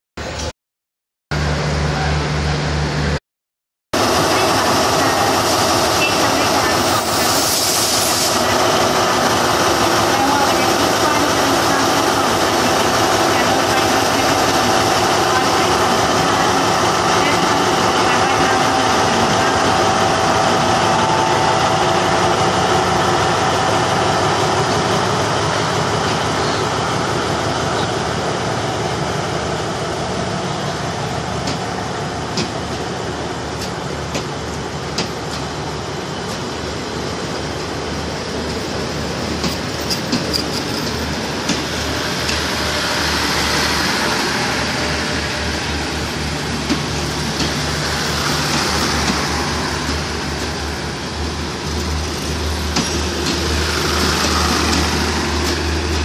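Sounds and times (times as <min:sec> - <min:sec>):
diesel locomotive engine running: 0:01.3 - 0:03.2, 0:04.0 - 0:56.0
wheel-on-rail rushing noise: 0:04.0 - 0:26.7, 0:31.4 - 0:56.0
train wheels clacking over rail joints: 0:39.4 - 0:43.1, 0:46.5 - 0:56.0.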